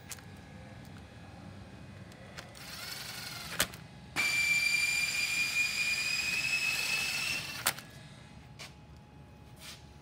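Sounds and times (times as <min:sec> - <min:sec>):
cordless driver motor whine: 0:02.0 - 0:08.0.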